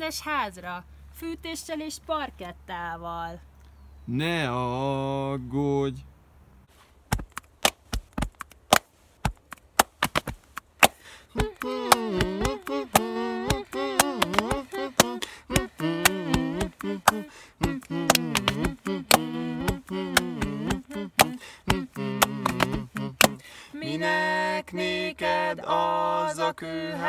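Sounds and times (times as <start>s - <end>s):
slaps on chest: 7.1s - 23.4s
hand claps: 7.3s - 23.4s
wordless a cappella singing: 11.3s - 27.0s.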